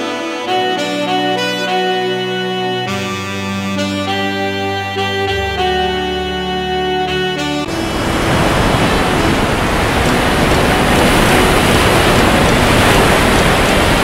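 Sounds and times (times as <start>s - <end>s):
ocean waves rushing: 7.6s - 14.0s.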